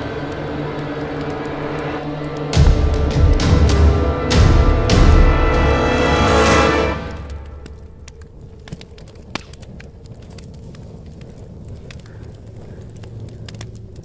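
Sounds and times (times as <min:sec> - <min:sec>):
soft crackles and ticks: 0:00.0 - 0:03.5, 0:07.2 - 0:14.0
steady low rumble: 0:00.0 - 0:14.0.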